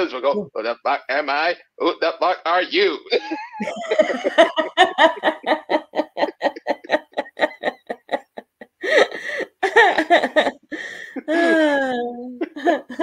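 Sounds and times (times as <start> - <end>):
person laughing hard: 3.1 - 13.0.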